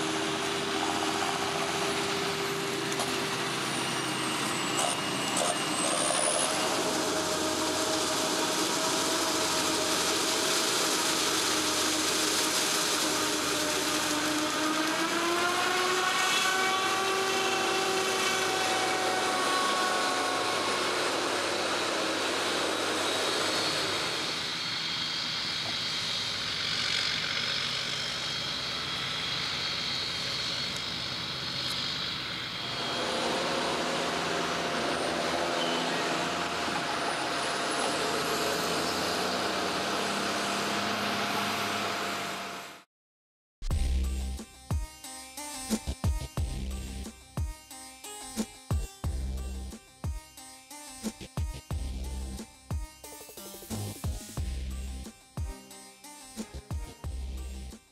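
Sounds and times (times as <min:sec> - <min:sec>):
forage harvester engine: 0:00.0 - 0:42.8
tractor diesel engine: 0:00.0 - 0:42.9, 0:46.0 - 0:47.2, 0:51.1 - 0:52.4, 0:53.7 - 0:55.1, 0:56.4 - 0:57.8.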